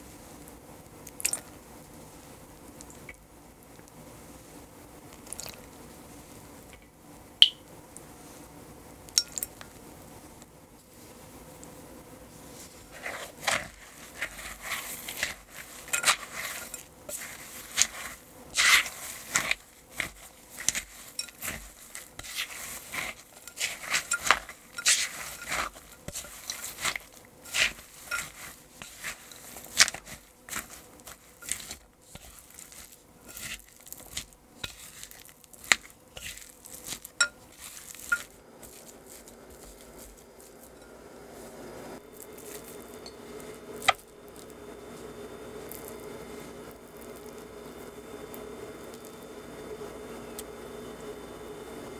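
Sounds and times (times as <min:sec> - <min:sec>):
spatula scraping glass bowl: 0:12.7 - 0:41.0.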